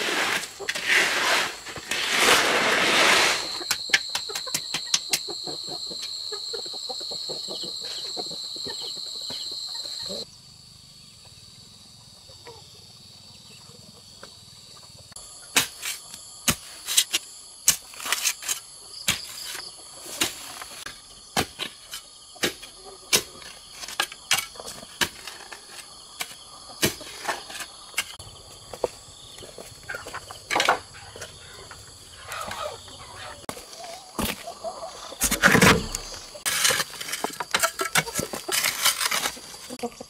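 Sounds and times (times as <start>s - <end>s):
insects droning: 0.0s - 40.0s.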